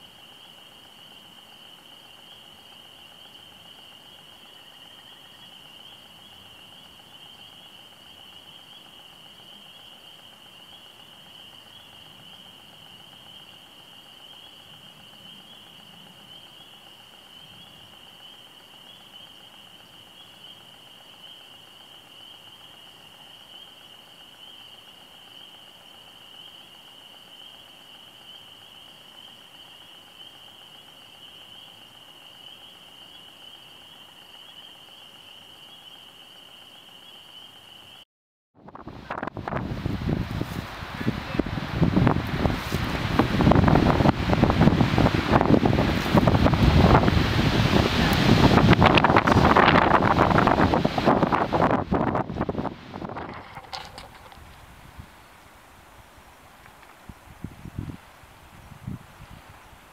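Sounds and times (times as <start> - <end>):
insects chirping: 0.0 - 38.1, 38.7 - 59.9.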